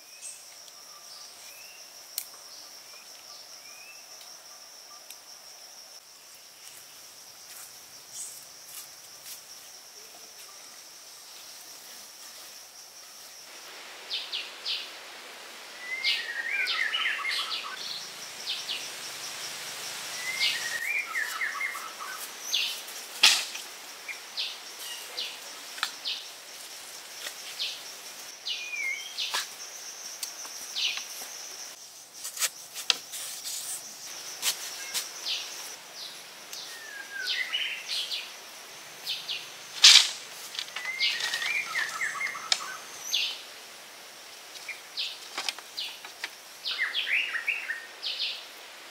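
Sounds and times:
songbird singing: 0.0s - 5.3s, 14.1s - 15.0s, 15.6s - 31.9s, 33.8s - 43.5s, 44.6s - 48.6s
high insect drone: 0.0s - 48.9s.

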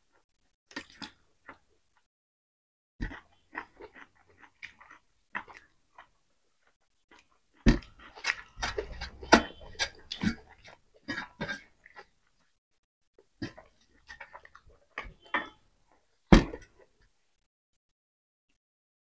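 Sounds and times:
wet chewing: 0.7s - 2.1s, 3.0s - 12.6s, 13.2s - 16.9s
lip smacks and mouth clicks: 8.0s - 12.1s.

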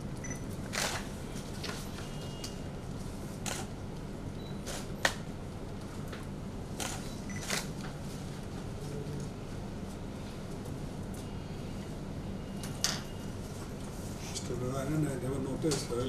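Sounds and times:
low room hum: 0.0s - 16.0s
camera shutters clicking: 0.7s - 1.0s, 6.8s - 7.7s.

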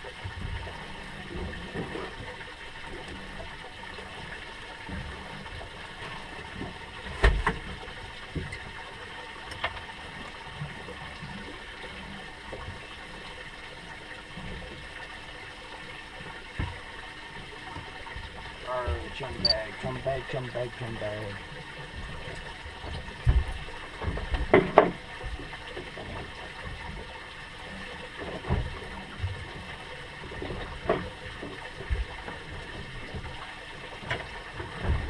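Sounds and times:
water washing around boat: 0.0s - 35.0s
knocks on boat: 23.2s - 25.0s.

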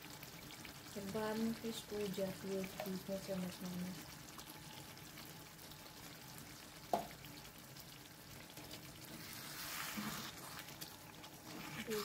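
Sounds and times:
curry simmering and bubbling: 0.0s - 12.0s
ladle stirring thick gravy: 7.2s - 12.0s.

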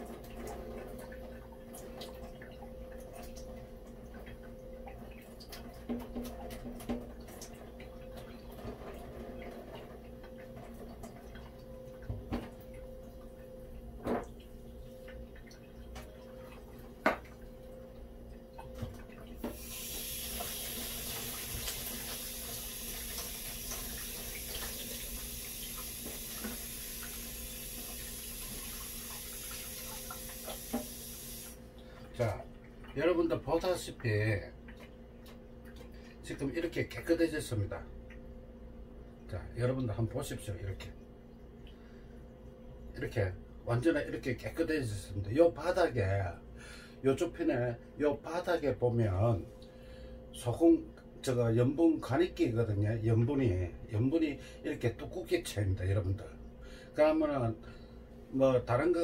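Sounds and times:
tap running into a sink: 5.4s - 7.5s, 17.0s - 17.4s, 18.6s - 31.6s.

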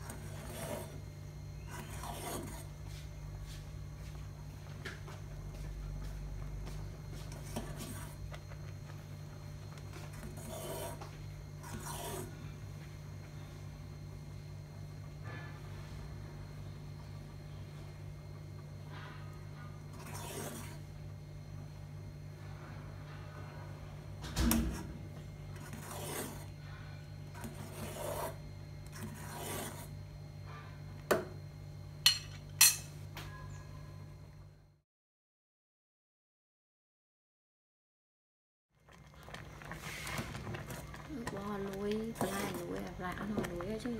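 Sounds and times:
ladle scraping metal pot: 0.0s - 1.0s, 1.6s - 2.8s, 9.9s - 12.3s, 19.9s - 20.8s, 25.6s - 26.5s, 27.3s - 29.9s, 32.1s - 32.9s
steady low hum: 0.0s - 34.8s
spoon clinking against pot: 32.1s - 33.0s.

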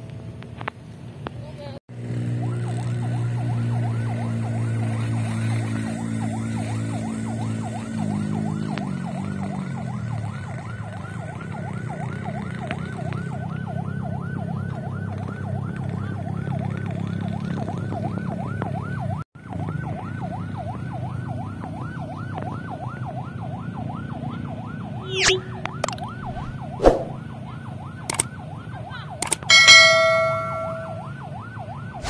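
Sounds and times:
siren yelping: 2.4s - 16.5s, 19.9s - 32.0s.

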